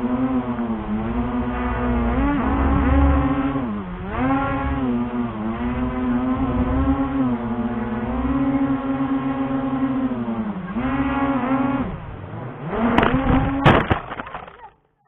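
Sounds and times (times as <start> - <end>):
drone propellers buzzing: 0.0 - 14.7.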